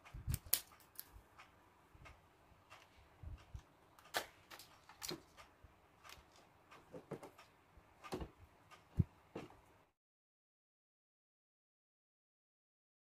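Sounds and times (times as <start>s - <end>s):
wiring clicks and rustles: 0.0s - 9.7s.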